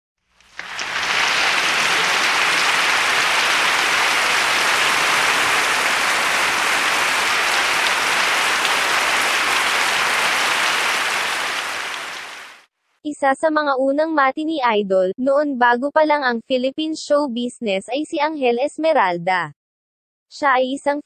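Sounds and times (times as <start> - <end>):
crowd applause: 0.4 - 12.6.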